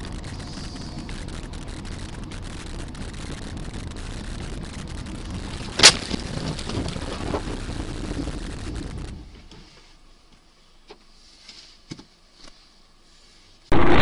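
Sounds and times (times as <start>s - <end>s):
road and engine rumble: 0.0s - 11.0s.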